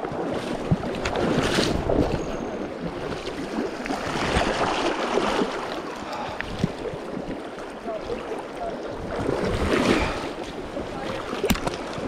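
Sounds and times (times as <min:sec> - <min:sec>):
river current rushing: 0:00.6 - 0:12.0
fish splashing at water surface: 0:03.0 - 0:07.0.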